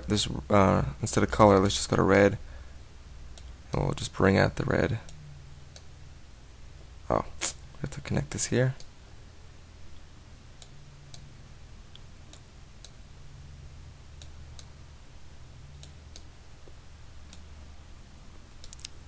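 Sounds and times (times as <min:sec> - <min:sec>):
steady low hum: 0:00.0 - 0:19.0
computer mouse clicks: 0:15.8 - 0:16.3, 0:18.6 - 0:19.0.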